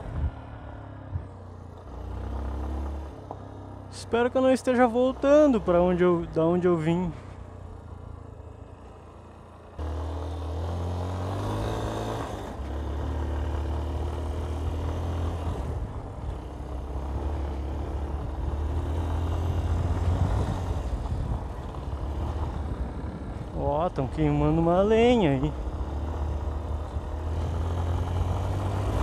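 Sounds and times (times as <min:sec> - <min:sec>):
motorcycle engine revving: 0:01.8 - 0:04.0, 0:09.2 - 0:29.0.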